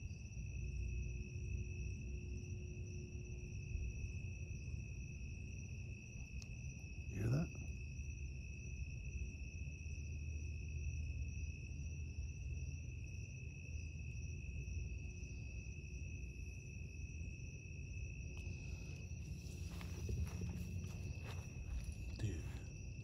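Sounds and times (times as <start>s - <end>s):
crickets trilling: 0.0s - 23.0s
low rumble: 18.4s - 22.8s.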